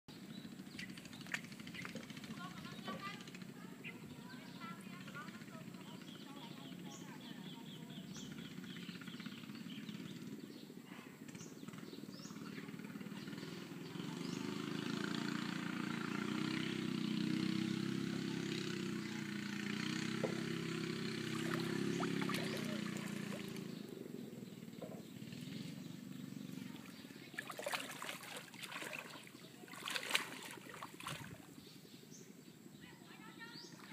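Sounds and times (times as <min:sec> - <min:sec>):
motor engine running: 0:00.1 - 0:32.3
small water splashes: 0:00.6 - 0:02.6, 0:19.5 - 0:23.8, 0:26.5 - 0:31.6.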